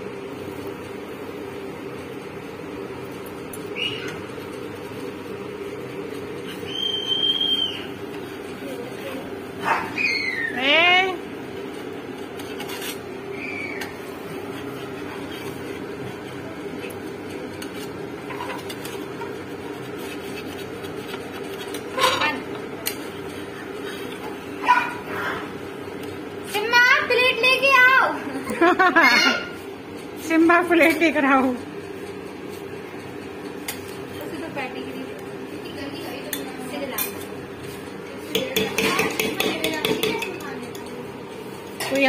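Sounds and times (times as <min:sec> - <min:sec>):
steady hum: 0:00.0 - 0:42.0
metal utensils scraping griddle: 0:12.3 - 0:24.3.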